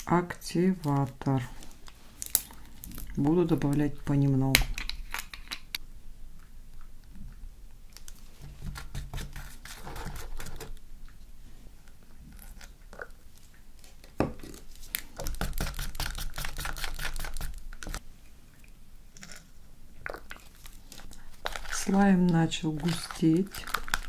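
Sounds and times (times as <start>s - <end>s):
stick stirring slime in cup: 20.4s - 24.0s.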